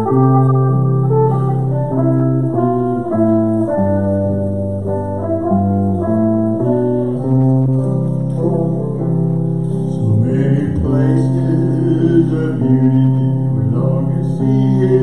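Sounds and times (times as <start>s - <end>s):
electric and acoustic guitars: 0.0s - 15.0s
person singing: 8.3s - 15.0s.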